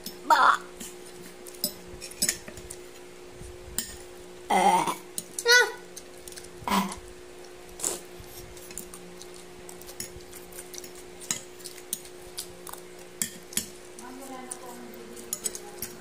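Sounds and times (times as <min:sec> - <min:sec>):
cutlery clinking on a plate: 0:01.6 - 0:02.6, 0:15.2 - 0:16.0.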